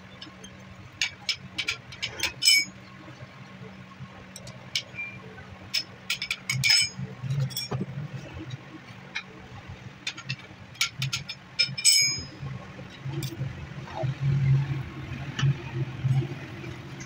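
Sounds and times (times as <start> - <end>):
steady low hum: 0.0 - 17.0
metal clicks and clinks: 0.2 - 2.7, 4.3 - 5.0, 5.7 - 7.8, 10.0 - 12.4
loud ringing metallic clank: 11.6 - 12.4.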